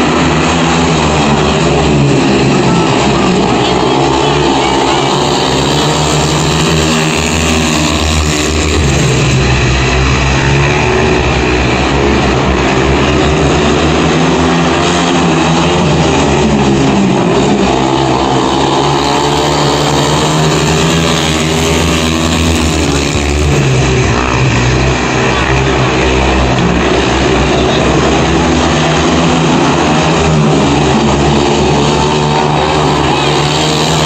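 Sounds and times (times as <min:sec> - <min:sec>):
motorbike engines racing: 0:00.0 - 0:34.0.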